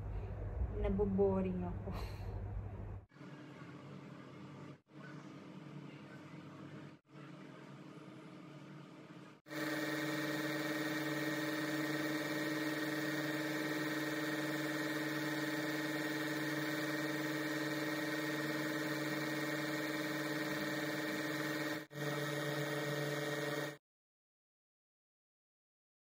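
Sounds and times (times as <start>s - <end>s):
small electric pump humming: 9.5s - 23.8s.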